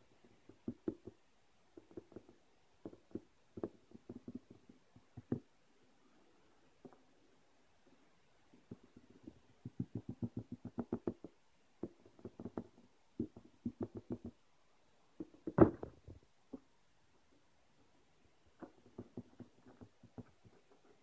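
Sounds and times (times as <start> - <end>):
fingers tapping cardboard box: 8.7 - 14.4.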